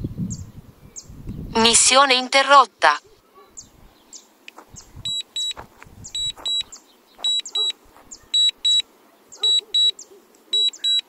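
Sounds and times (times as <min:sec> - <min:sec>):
high-pitched double beeps: 0:05.0 - 0:05.6, 0:06.2 - 0:07.7, 0:08.4 - 0:08.8, 0:10.6 - 0:11.0.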